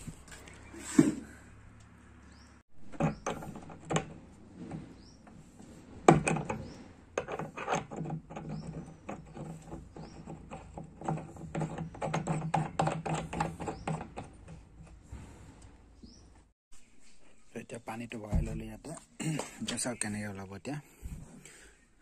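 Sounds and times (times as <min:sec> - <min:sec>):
handling clicks and knocks: 0:02.8 - 0:15.0.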